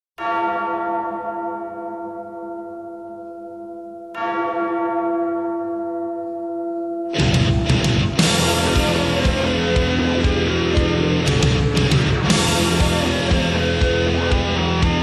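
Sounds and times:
large church bell ringing: 0.2s - 15.0s.

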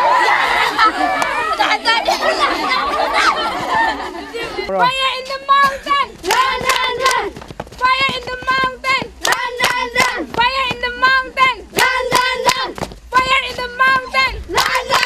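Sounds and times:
girls singing together: 0.0s - 15.0s
hand claps: 6.3s - 10.8s.

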